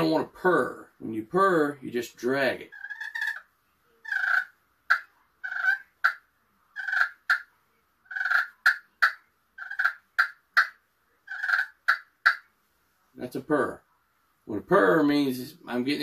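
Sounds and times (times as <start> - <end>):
slate turkey call purring: 2.6 - 12.5.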